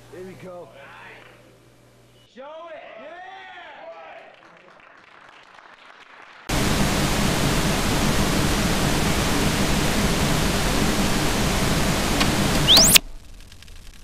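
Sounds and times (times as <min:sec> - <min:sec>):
television static hiss: 0:00.0 - 0:02.3, 0:06.5 - 0:14.0
thin rising whistle: 0:12.5 - 0:13.0.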